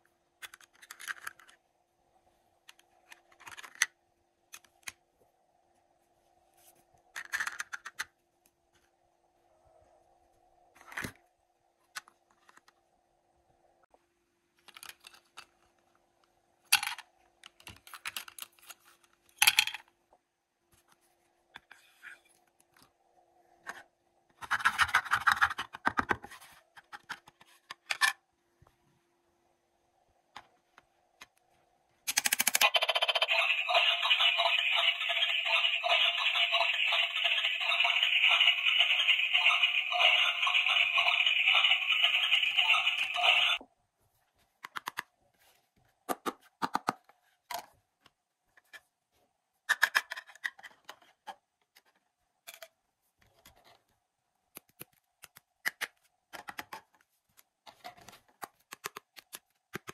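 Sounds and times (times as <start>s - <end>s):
plastic toy cookware clicks and taps: 32.1s - 43.1s, 46.1s - 47.0s, 49.7s - 50.6s, 55.2s - 56.8s, 58.7s - 59.9s
faint steady hum: 33.1s - 44.5s.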